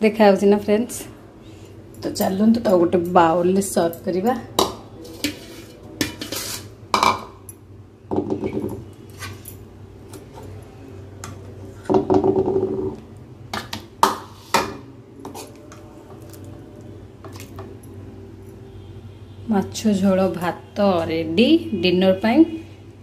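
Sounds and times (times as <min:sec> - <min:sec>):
metal spatula scraping pan: 0:05.0 - 0:06.8.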